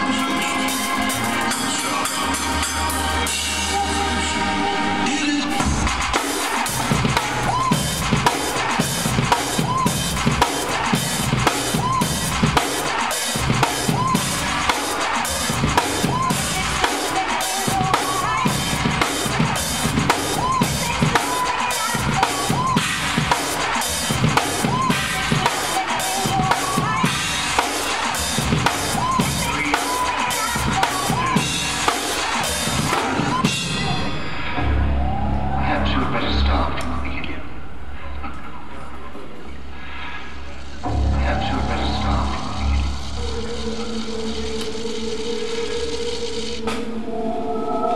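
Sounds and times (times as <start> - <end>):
drum kit playing: 0.0 - 4.0, 5.5 - 34.8.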